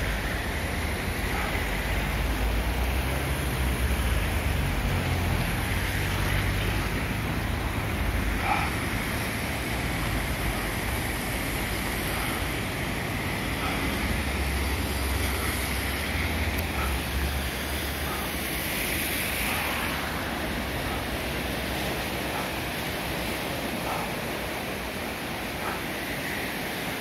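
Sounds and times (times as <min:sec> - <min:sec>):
river floodwater rushing: 0:00.0 - 0:27.0.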